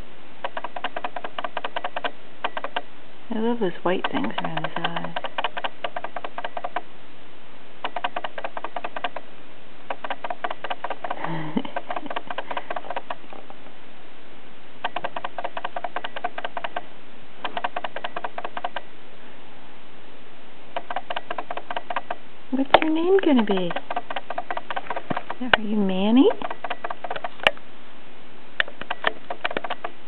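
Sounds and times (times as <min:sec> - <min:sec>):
cat purring: 0:09.9 - 0:13.5
low voiced sound: 0:11.2 - 0:11.8.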